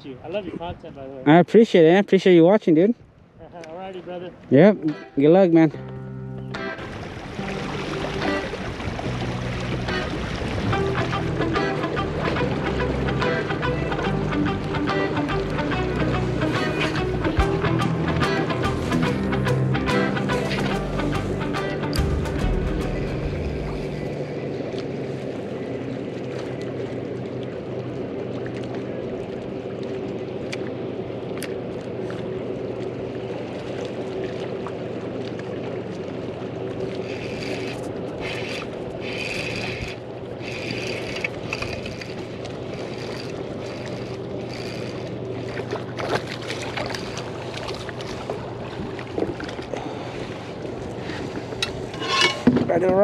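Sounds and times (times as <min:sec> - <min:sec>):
water slapping hull: 0:06.5 - 0:53.0
splashes: 0:06.6 - 0:17.1, 0:23.4 - 0:53.0
electric motor humming: 0:36.8 - 0:45.9.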